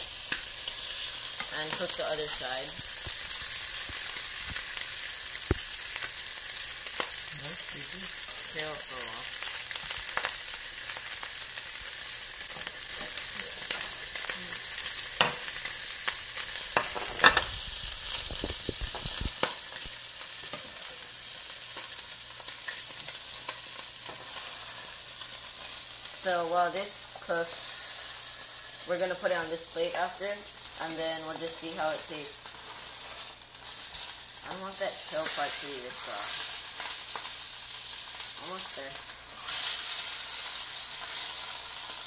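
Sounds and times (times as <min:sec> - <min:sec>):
fish sizzling in oil: 0:00.0 - 0:42.0.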